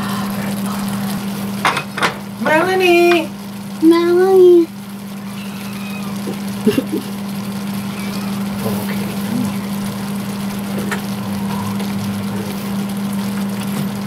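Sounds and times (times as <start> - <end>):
low mechanical hum: 0.0 - 14.0
dishes clicking: 1.6 - 2.3.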